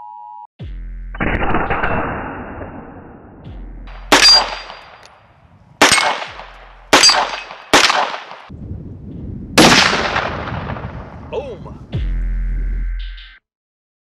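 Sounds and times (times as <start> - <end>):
rifle shots: 3.9 - 5.1, 5.8 - 8.5, 9.6 - 11.0.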